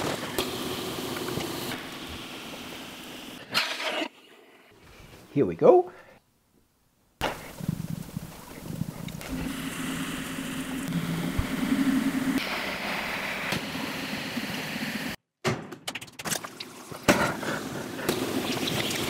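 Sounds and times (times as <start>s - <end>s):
potter's wheel motor hum: 7.6s - 15.2s.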